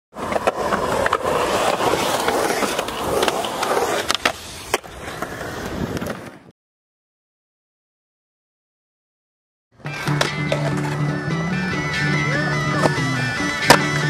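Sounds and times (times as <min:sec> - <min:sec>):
skateboard wheels rolling on concrete: 0:00.1 - 0:06.5, 0:09.8 - 0:14.0
skateboards clacking on concrete: 0:00.2 - 0:06.4, 0:09.9 - 0:11.1, 0:12.7 - 0:13.0.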